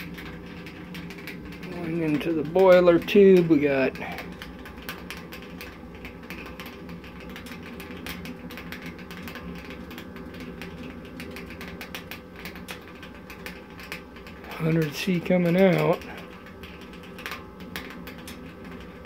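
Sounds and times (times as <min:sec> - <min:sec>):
crackling from boiler: 0:00.0 - 0:19.0
fan humming: 0:00.0 - 0:19.0.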